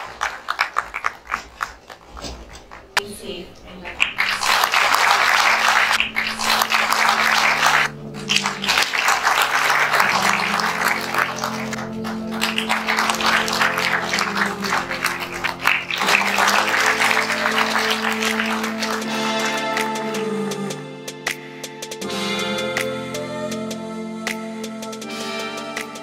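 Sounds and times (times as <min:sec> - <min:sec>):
audience applauding: 0:00.0 - 0:03.0, 0:03.9 - 0:20.3
music with long held low notes: 0:04.4 - 0:26.0.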